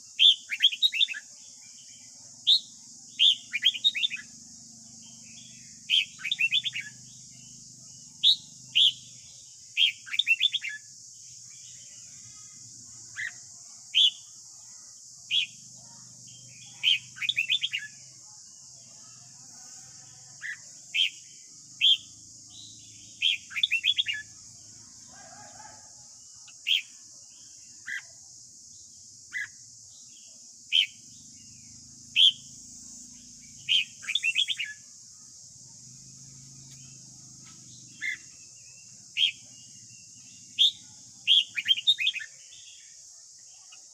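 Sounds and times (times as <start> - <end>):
bird singing whistled notes: 0.0 - 1.3, 2.5 - 4.4, 5.2 - 7.5, 8.1 - 10.9, 16.4 - 18.0, 20.4 - 24.3, 30.7 - 34.9, 37.8 - 42.4.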